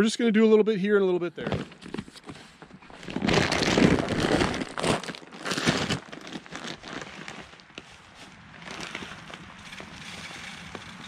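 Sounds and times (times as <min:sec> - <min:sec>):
plastic sack crinkling: 0:02.8 - 0:11.0.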